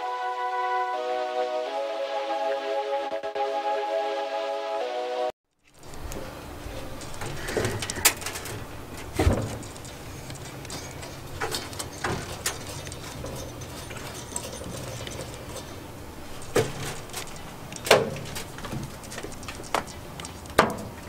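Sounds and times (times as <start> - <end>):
steady low hum: 5.7 - 21.0
metal clunks and knocks: 6.2 - 15.8, 16.4 - 19.9, 20.5 - 21.0.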